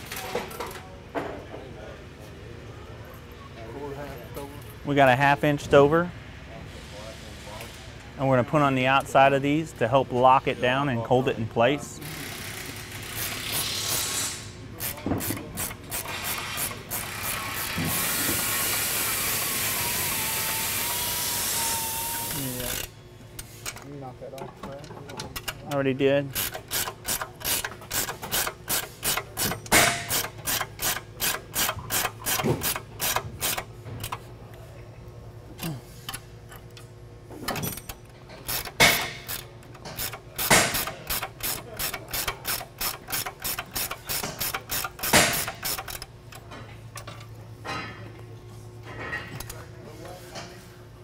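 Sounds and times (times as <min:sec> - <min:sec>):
ratchet wrench clicking: 0:14.8 - 0:18.8, 0:26.3 - 0:34.2, 0:37.7 - 0:47.2.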